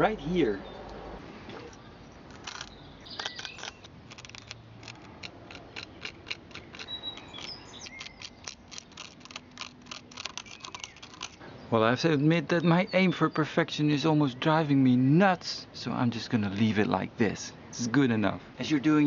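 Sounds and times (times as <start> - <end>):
bird chirps: 1.7 - 4.7, 5.8 - 9.6, 10.3 - 13.5
tool scraping dry clay: 2.3 - 11.4.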